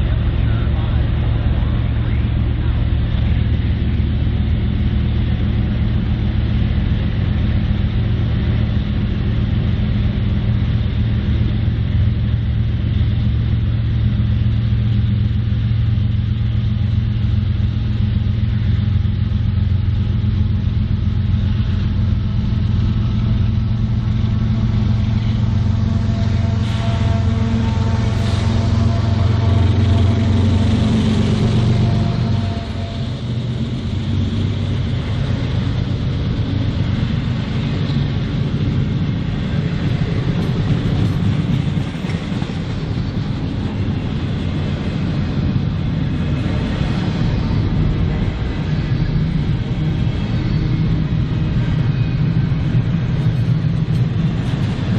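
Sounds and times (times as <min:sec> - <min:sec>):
diesel locomotive rumbling: 0:00.0 - 0:54.9
steady higher tones: 0:16.9 - 0:54.9.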